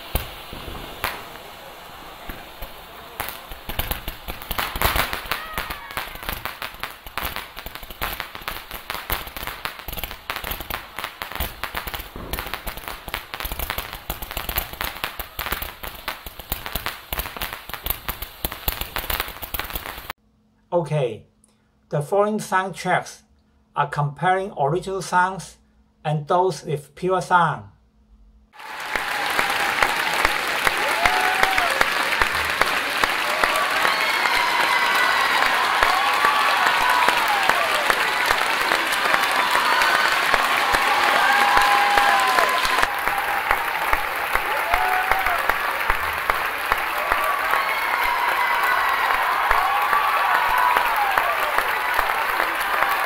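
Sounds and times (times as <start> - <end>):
crowd applauding and cheering: 0.0 - 17.5, 28.6 - 53.0
fireworks bangs and crackling: 0.0 - 20.2, 28.6 - 53.0.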